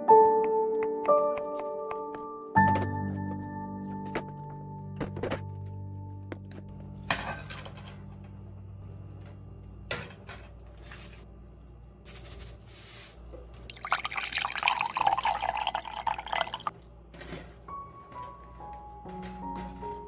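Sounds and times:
liquid pouring into a pan: 13.7 - 16.7.

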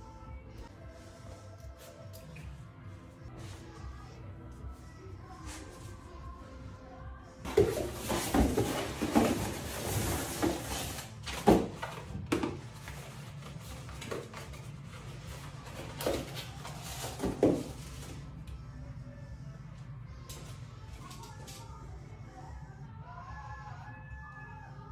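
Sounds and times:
cardboard and packing rustling: 7.5 - 18.3.

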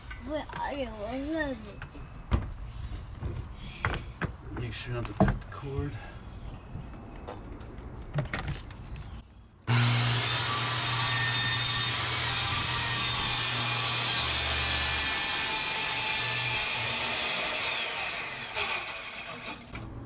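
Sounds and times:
circular saw cutting: 9.7 - 19.9.

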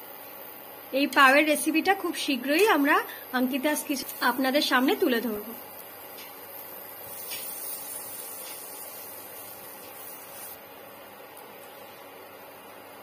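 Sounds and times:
butter sizzling in a frying pan: 1.4 - 10.6.

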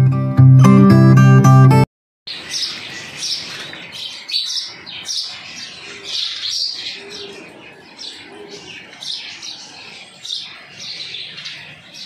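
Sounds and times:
birds chirping: 2.3 - 12.0.

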